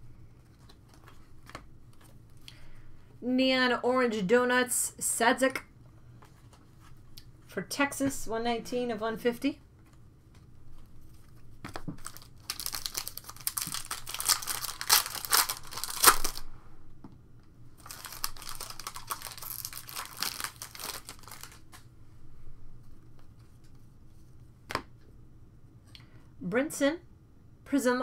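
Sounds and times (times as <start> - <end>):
foil wrappers crinkling and tearing: 11.7 - 16.4, 17.8 - 21.9.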